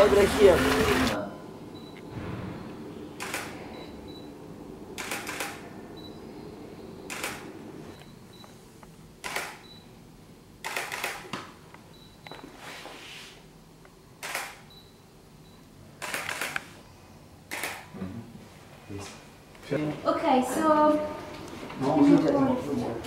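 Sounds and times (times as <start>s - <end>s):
camera shutter firing: 3.2s - 3.6s, 5.0s - 5.6s, 7.1s - 7.5s, 9.2s - 9.6s, 10.6s - 11.3s, 14.2s - 14.7s, 16.0s - 16.7s, 17.5s - 17.9s.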